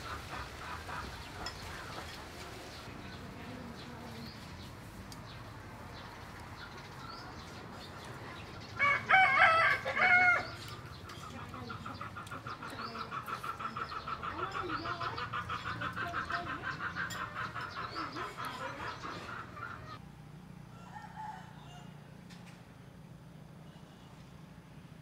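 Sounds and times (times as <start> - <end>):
rooster crowing: 8.8 - 10.7, 20.7 - 22.2.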